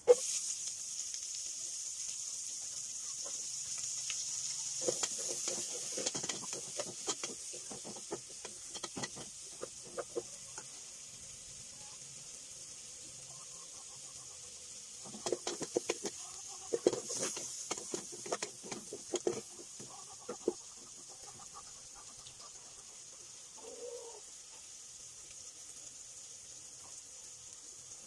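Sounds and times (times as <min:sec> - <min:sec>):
onions sizzling in hot fat: 0:00.0 - 0:28.0
wooden spatula scraping a pot: 0:04.8 - 0:10.6, 0:15.0 - 0:21.8.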